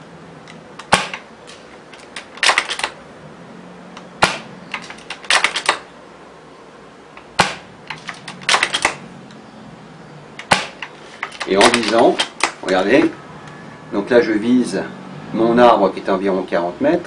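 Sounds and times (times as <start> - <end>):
rifle bolt clicking: 0.5 - 3.0, 4.7 - 5.8, 7.9 - 9.0
airsoft rifle shot pops: 0.8 - 1.2, 4.2 - 4.5, 7.4 - 7.7, 10.4 - 10.9.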